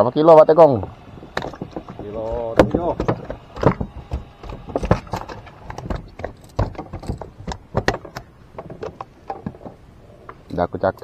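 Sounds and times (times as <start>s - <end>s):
knocks on wooden boat deck: 1.2s - 9.7s.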